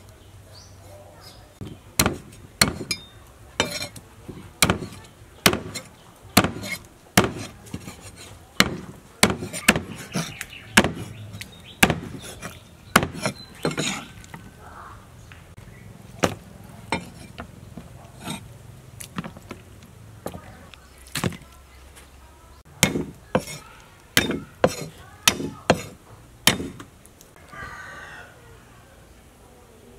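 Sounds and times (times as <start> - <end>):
cleaver chopping on wooden board: 1.6 - 14.0, 16.2 - 17.5, 22.8 - 23.6, 24.2 - 26.9.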